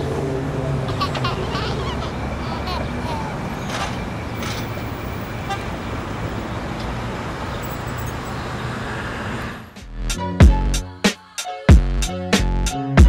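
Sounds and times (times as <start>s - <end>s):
street traffic rumble: 0.0s - 10.6s
hip-hop music with heavy beats: 9.8s - 13.0s.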